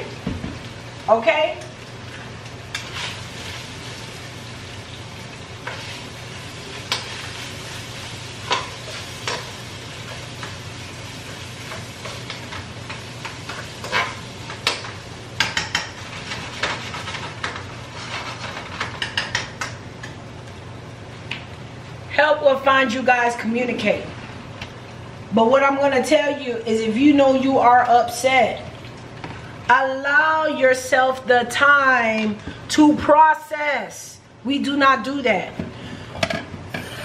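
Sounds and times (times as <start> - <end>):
food sizzling in a pan: 0.0 - 20.5
spoon stirring and scraping pan: 5.6 - 20.2.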